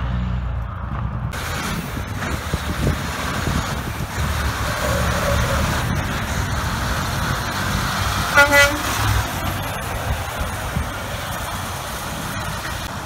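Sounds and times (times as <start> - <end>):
truck engine accelerating: 0.0 - 13.0
tyres on wet pavement: 0.0 - 13.0
truck horn blasts: 8.3 - 9.2.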